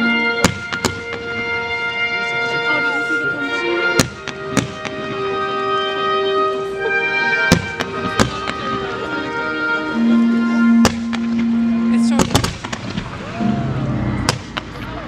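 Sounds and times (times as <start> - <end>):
music with long held notes: 0.0 - 15.0
firework bangs: 0.4 - 1.8, 4.0 - 5.3, 7.5 - 9.0, 10.8 - 11.6, 12.2 - 15.0.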